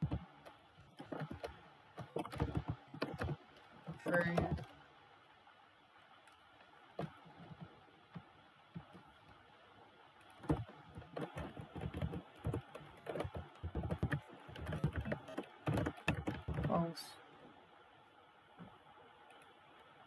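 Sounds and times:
typing on computer keyboard: 0:00.0 - 0:04.8, 0:10.2 - 0:16.8.

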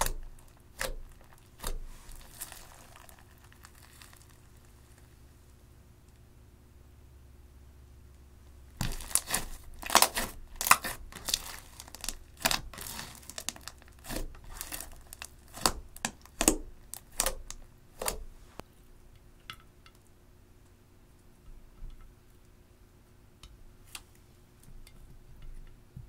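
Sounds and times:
slime crackling and clicking: 0:08.8 - 0:18.2.

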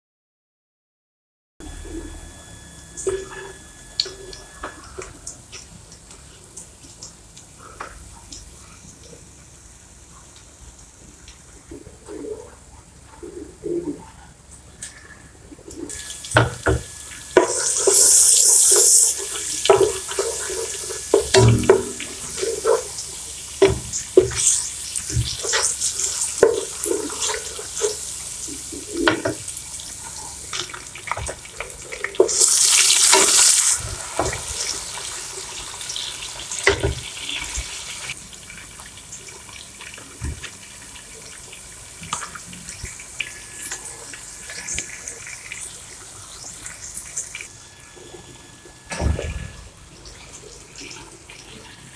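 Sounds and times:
oil sizzling in a pot: 0:02.4 - 0:11.7, 0:15.9 - 0:48.6
loud hissing bursts: 0:15.9 - 0:29.0.

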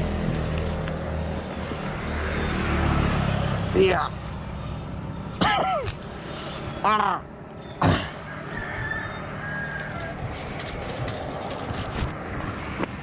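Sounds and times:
rooster crowing: 0:08.2 - 0:10.6.

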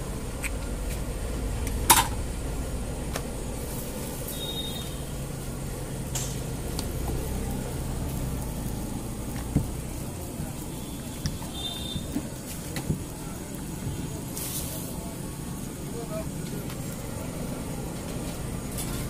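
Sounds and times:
steady low rumble: 0:00.0 - 0:10.7.

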